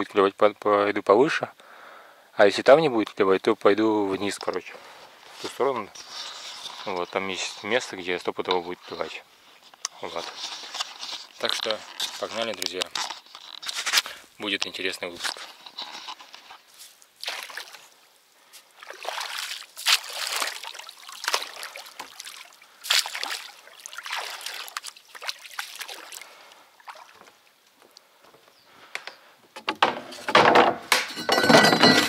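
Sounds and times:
pole splashing in water: 18.8 - 26.2
wooden clatter and knocking: 29.0 - 32.0.

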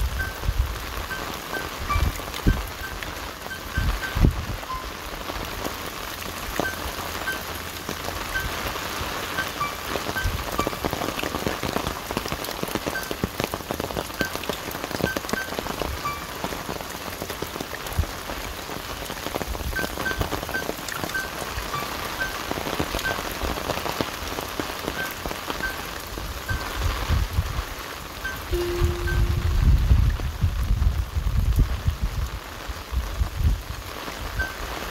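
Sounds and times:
rain falling on leaves: 0.0 - 34.9
short high peeps: 28.3 - 29.7.

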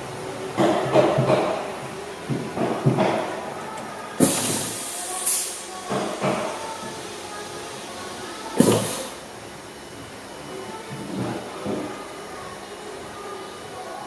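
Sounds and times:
air hiss from valve: 4.2 - 5.7.

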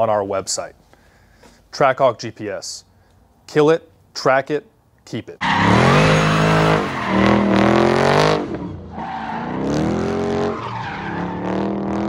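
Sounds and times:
car engine revving: 5.4 - 12.0.

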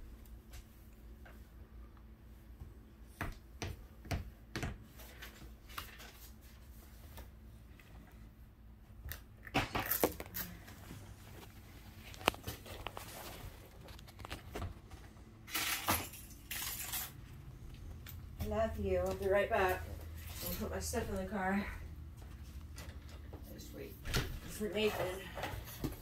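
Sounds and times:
low steady hum: 0.0 - 26.0
rustling and scraping: 4.9 - 8.4, 9.7 - 26.0.

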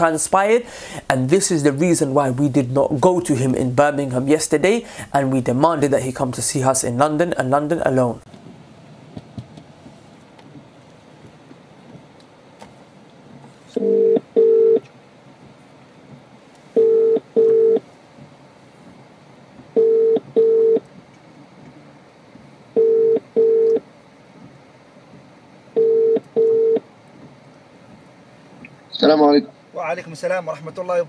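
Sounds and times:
telephone ringback tone: 13.8 - 14.8, 16.8 - 17.8, 19.8 - 20.8, 22.8 - 23.8, 25.8 - 26.8.

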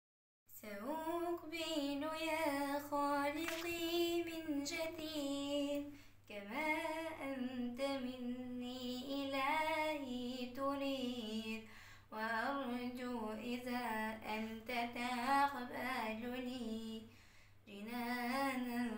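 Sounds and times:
girl singing unaccompanied: 0.5 - 17.1, 17.7 - 18.9
singer breathing: 11.7 - 12.1, 17.1 - 17.6.

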